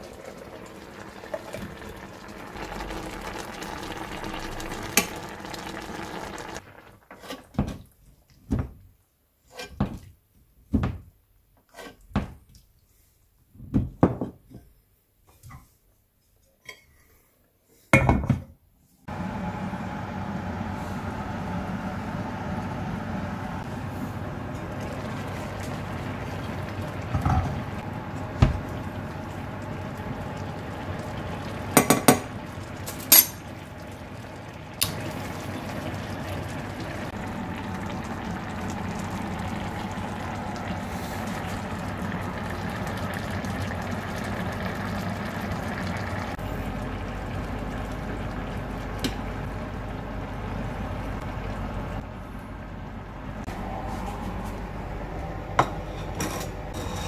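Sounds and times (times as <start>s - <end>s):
fish simmering in broth: 0.0s - 7.6s, 19.1s - 56.0s.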